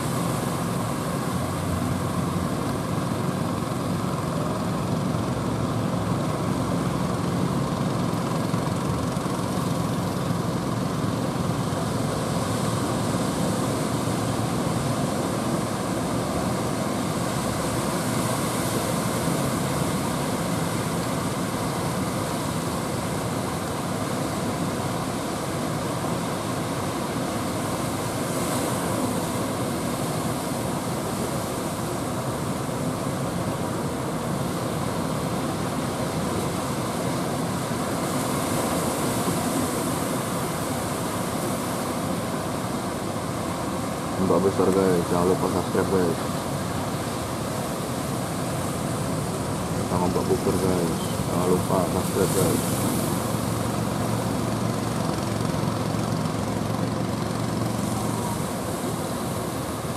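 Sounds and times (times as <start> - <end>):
heavy surf breaking: 26.7 - 59.9.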